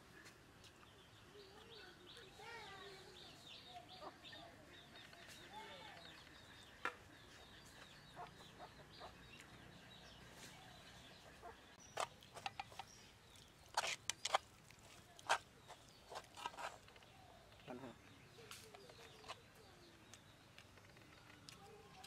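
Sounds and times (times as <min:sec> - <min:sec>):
faint bird chirping: 0:00.0 - 0:22.0
wet smacking and chewing: 0:11.8 - 0:17.6.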